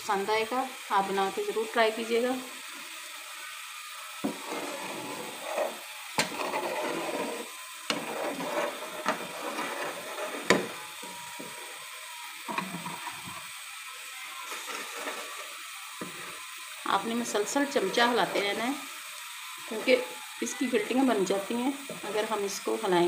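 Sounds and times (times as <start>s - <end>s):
spoon scraping metal pan: 4.2s - 11.8s, 14.4s - 16.5s, 17.6s - 18.9s.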